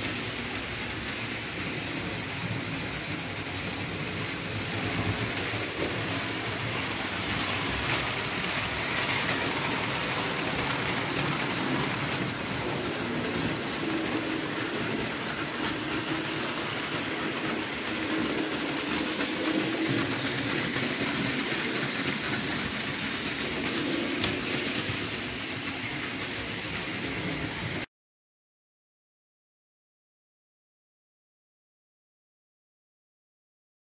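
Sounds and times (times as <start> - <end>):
model train wheels rattling on rails: 0.0 - 27.9.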